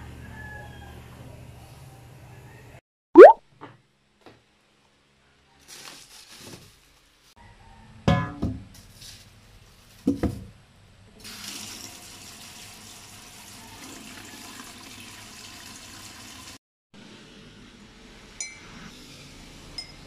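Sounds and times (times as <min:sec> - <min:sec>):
tap water running into pot: 0:11.2 - 0:16.6.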